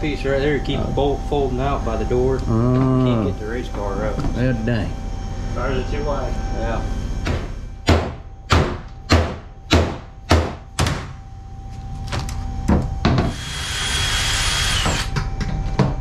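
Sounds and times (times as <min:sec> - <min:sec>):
cordless drill whining: 0:13.3 - 0:15.2.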